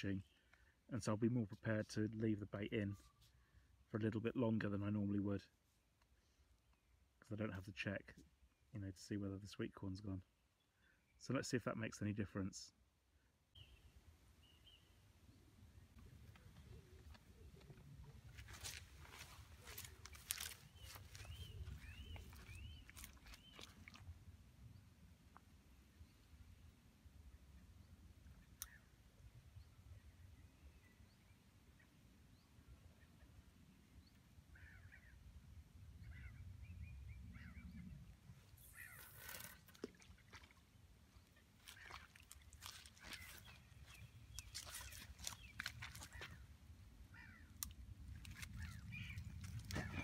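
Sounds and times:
bird chirps: 0:13.5 - 0:15.0, 0:19.1 - 0:24.0, 0:36.0 - 0:39.6, 0:41.2 - 0:46.5.

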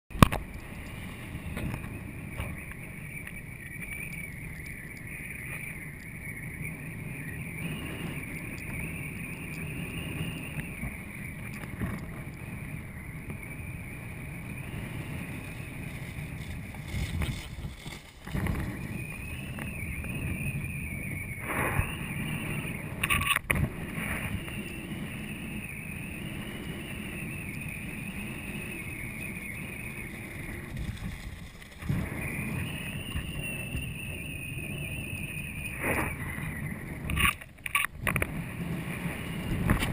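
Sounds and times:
high whine: 0:00.1 - 0:39.9
water and wind rushing: 0:06.5 - 0:29.2, 0:35.6 - 0:39.9.

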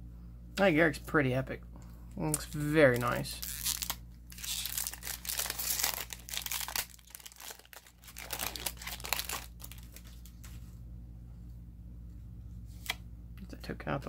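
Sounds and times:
foil wrapper crinkling: 0:02.4 - 0:10.6.

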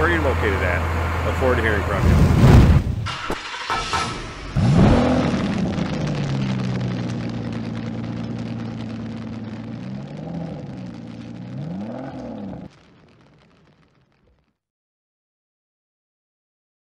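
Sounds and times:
engine revving and idling: 0:03.2 - 0:12.7.

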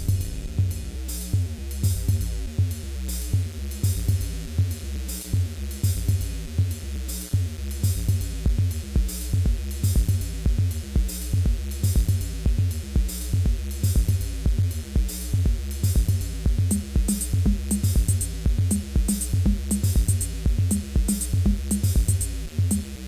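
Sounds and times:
kick drum: 0:00.0 - 0:02.8, 0:03.4 - 0:04.8, 0:05.4 - 0:06.8, 0:07.4 - 0:23.0
crisp hi-hats: 0:00.0 - 0:23.0
synth bass: 0:00.0 - 0:23.0
techno music: 0:07.4 - 0:23.0
repeating synth sequence: 0:16.6 - 0:22.8.

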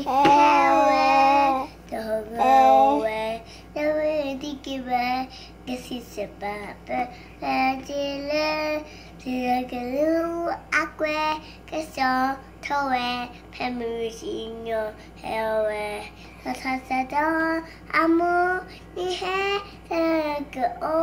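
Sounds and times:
girl singing: 0:00.0 - 0:21.0.

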